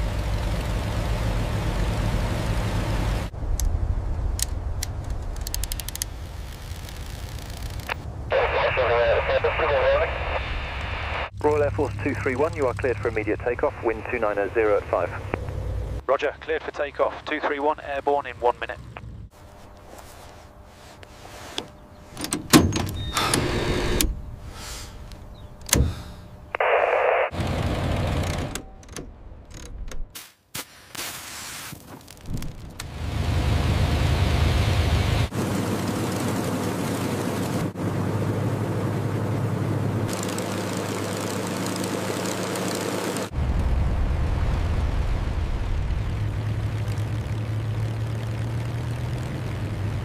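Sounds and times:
deep engine rumble: 0.0s - 29.8s, 32.4s - 50.0s
piston engine running: 21.0s - 26.4s, 39.0s - 43.3s
cockpit controls clunking and clicking: 21.5s - 24.2s, 25.4s - 26.1s, 28.1s - 30.1s.

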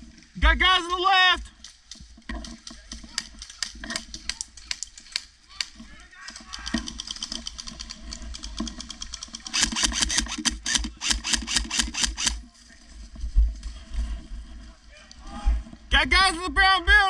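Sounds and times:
airsoft guns firing: 9.2s - 12.4s.

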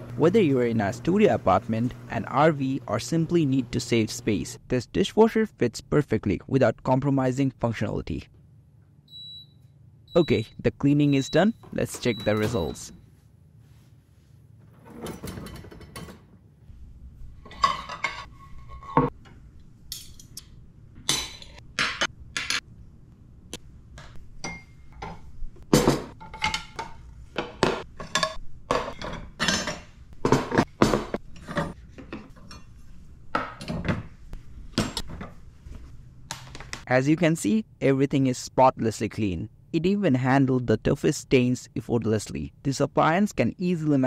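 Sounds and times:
dishes and cutlery clinking: 17.4s - 19.1s.

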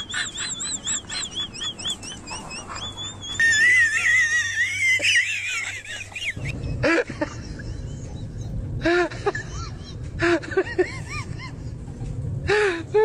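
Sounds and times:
bird calls: 0.0s - 6.4s
low steady background noise: 0.0s - 13.0s.

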